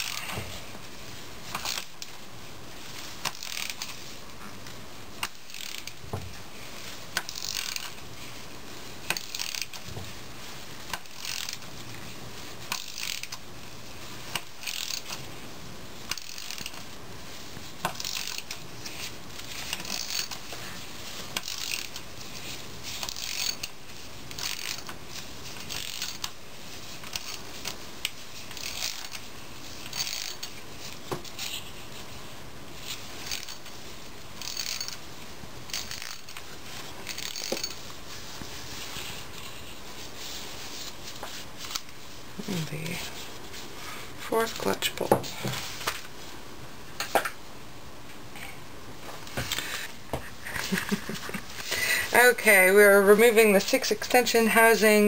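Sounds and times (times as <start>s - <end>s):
ratchet wrench clicking: 5.2s - 5.9s, 19.7s - 20.4s, 21.4s - 22.0s, 23.0s - 23.7s, 29.9s - 30.4s, 33.2s - 33.6s, 34.4s - 35.0s.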